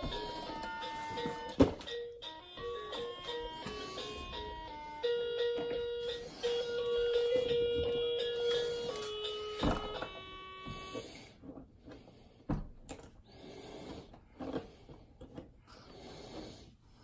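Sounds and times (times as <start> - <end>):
electronic toy tune: 0.0 - 11.0.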